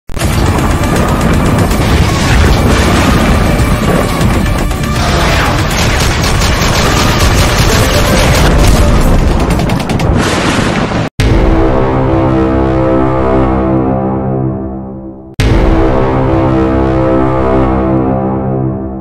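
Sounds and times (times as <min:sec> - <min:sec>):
loud intro music: 0:00.2 - 0:10.2, 0:11.2 - 0:19.0
gunfire sound effects: 0:00.2 - 0:11.2
heavy booms: 0:00.2 - 0:12.6, 0:15.4 - 0:16.8.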